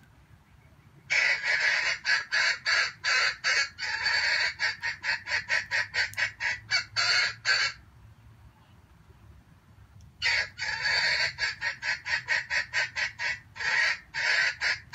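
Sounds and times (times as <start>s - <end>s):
junglefowl cackling: 1.1s - 7.8s, 10.2s - 14.9s.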